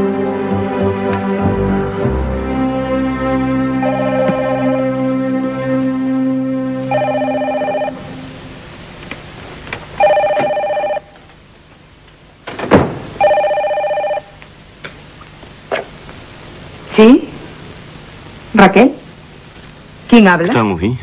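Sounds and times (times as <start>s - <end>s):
background music: 0.0s - 8.7s
telephone ringing: 3.8s - 4.9s, 6.9s - 8.3s, 10.0s - 11.2s, 13.2s - 14.4s.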